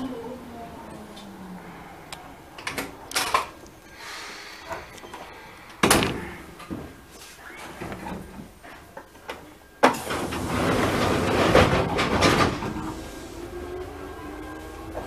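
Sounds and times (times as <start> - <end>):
train doors clunking and clicking: 2.5 - 3.8, 4.6 - 13.3
door slamming: 5.8 - 6.9.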